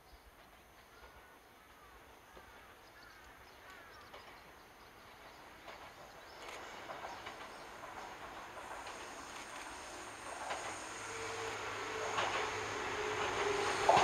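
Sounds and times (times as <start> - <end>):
electric train approaching: 0.2 - 14.0
wheels clicking over rail joints: 3.2 - 10.9, 11.9 - 14.0.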